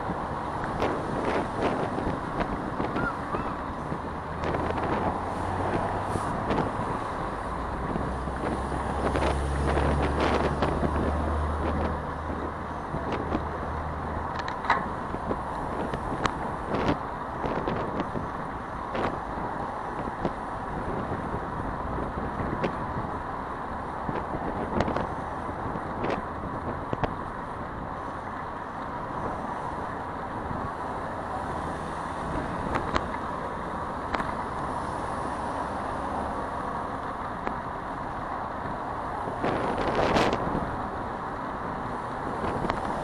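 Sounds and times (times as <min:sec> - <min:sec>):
wind on microphone: 0:00.0 - 0:23.3, 0:24.0 - 0:28.0, 0:38.6 - 0:40.9, 0:41.6 - 0:43.0
road traffic noise: 0:00.0 - 0:43.0.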